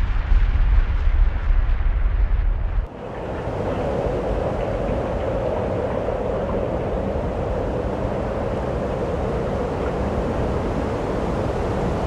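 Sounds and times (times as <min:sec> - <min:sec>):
deep rumble: 0:00.0 - 0:02.9
steady rushing noise: 0:00.0 - 0:12.0.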